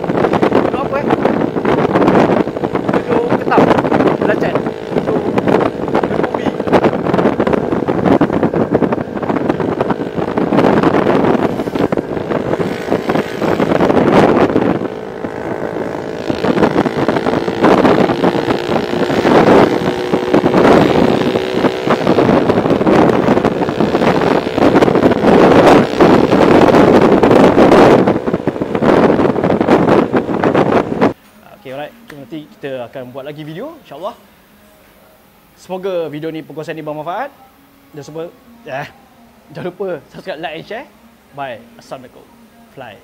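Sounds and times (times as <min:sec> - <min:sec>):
wind buffeting microphone: 0:00.0 - 0:32.5
motorcycle engine drone: 0:00.0 - 0:43.0.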